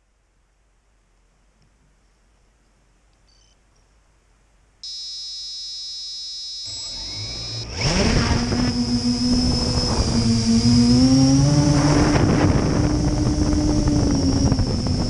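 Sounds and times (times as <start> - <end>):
quadcopter propellers whining: 4.8 - 15.0
steady high electronic tone: 4.8 - 15.0.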